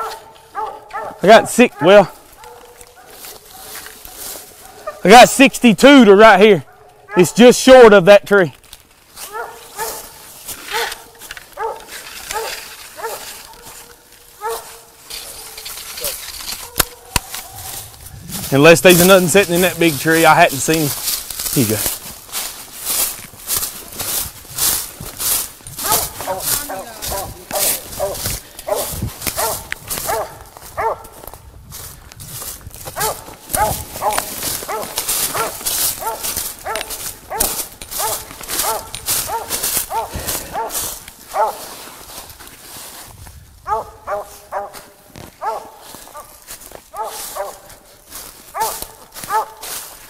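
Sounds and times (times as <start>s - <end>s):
dog barking: 0.0s - 5.1s, 6.7s - 7.4s, 9.3s - 15.6s, 16.6s - 17.8s, 25.8s - 31.2s, 33.0s - 41.7s, 43.6s - 47.7s, 48.5s - 49.7s
footsteps crunching dry leaves: 0.0s - 50.0s.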